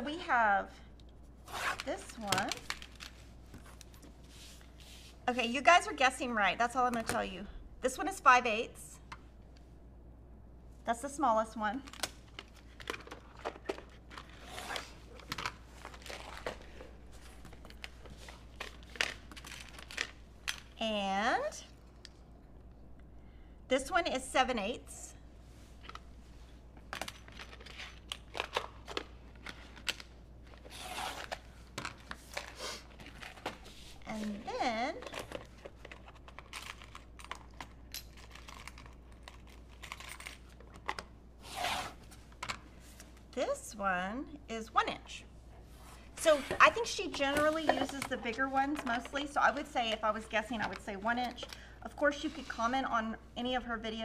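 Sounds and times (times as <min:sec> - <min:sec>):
rustling and crinkling materials: 0:01.2 - 0:05.5, 0:11.8 - 0:20.8, 0:25.4 - 0:43.4.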